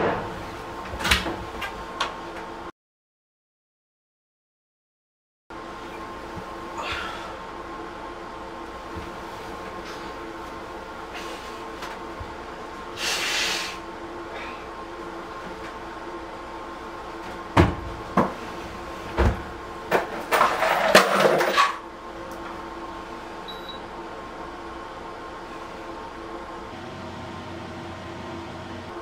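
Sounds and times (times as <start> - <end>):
steady hum: 5.5 - 20.8, 21.4 - 29.0.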